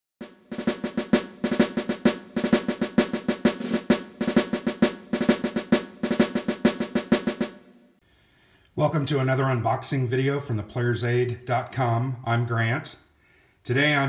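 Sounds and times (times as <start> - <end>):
drum pattern with rolls: 0.2 - 7.8.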